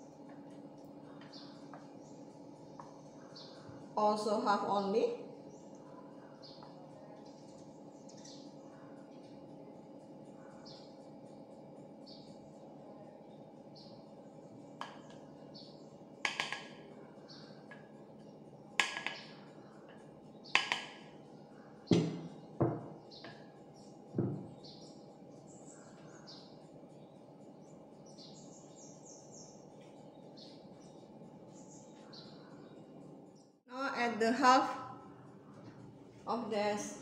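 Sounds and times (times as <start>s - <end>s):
soft background music: 0.0s - 37.0s.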